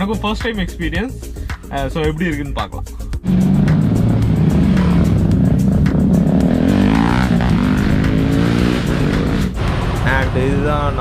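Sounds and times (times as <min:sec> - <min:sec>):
car engine running: 0:03.2 - 0:11.0
motorcycle engines revving: 0:03.2 - 0:11.0.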